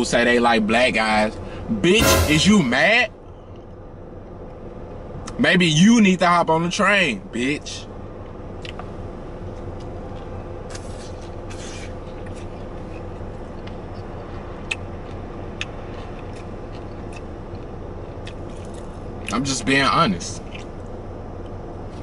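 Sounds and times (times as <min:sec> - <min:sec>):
low hum in car cabin: 0:00.0 - 0:02.0, 0:02.8 - 0:22.0
soft eating noises: 0:07.4 - 0:22.0.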